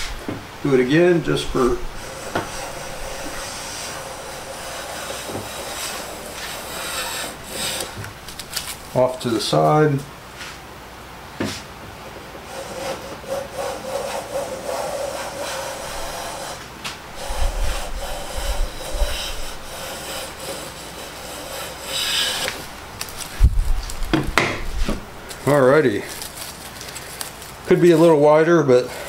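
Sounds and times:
hand plane shaving wood: 2.0s - 8.7s, 12.5s - 16.6s, 17.2s - 23.3s
plane thumping on bench: 24.1s - 25.1s.

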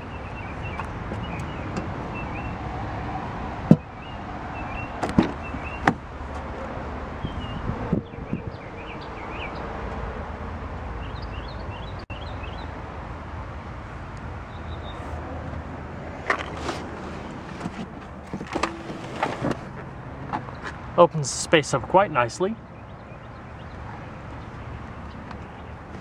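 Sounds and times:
small birds chirping: 0.0s - 2.6s, 3.8s - 5.9s, 7.2s - 9.7s, 11.0s - 12.8s, 22.2s - 26.0s
car door clunk: 5.0s - 6.0s
car seat clicks and knocks: 5.0s - 6.0s.

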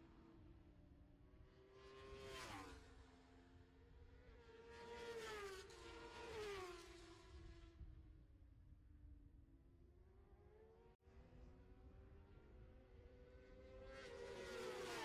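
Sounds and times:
distant racing motorcycle engines: 10.5s - 15.0s.

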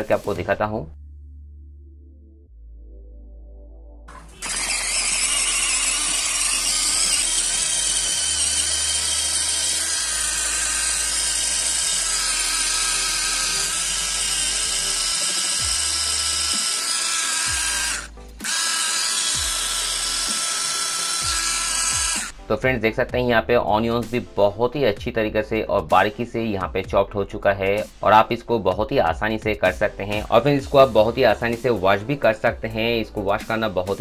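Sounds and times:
electric food chopper whirring: 4.1s - 22.5s.

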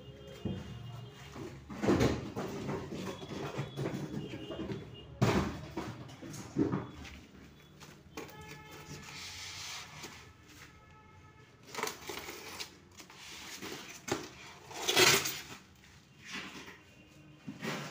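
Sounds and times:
plastic packaging rustling: 6.8s - 17.3s.

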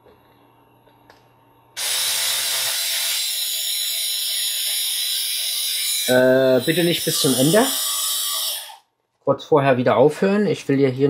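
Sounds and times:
electric screwdriver motor whine: 1.8s - 8.8s.

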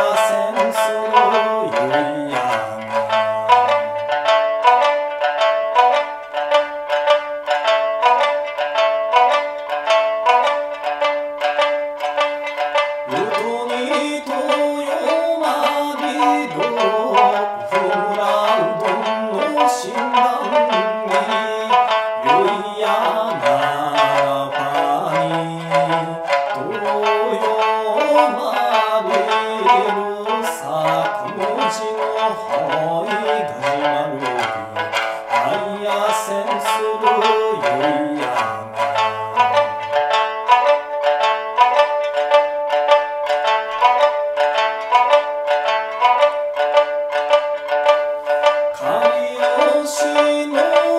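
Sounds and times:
man singing folk song: 0.0s - 4.9s, 13.0s - 40.3s, 48.3s - 50.9s
plucked lute fast rhythm: 0.0s - 50.9s.

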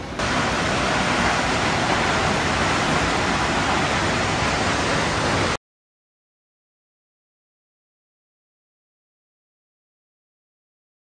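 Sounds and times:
waterfall rushing: 0.0s - 5.6s.

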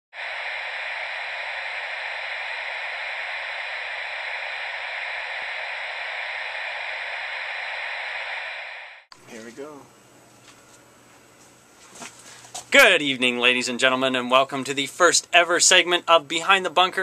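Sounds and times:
television static hiss: 0.2s - 9.9s.

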